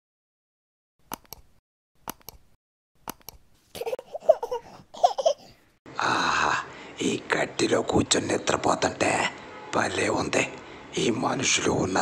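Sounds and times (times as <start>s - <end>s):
baby giggling and babbling: 3.7s - 5.6s.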